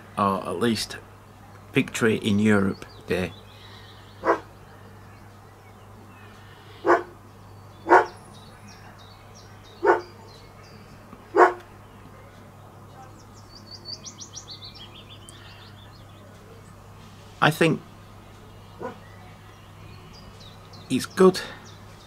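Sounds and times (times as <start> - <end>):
dog barking: 4.2 - 4.5, 6.8 - 7.2, 7.8 - 8.2, 9.8 - 10.2, 11.3 - 11.6, 18.8 - 19.0
small bird twittering: 13.0 - 16.8.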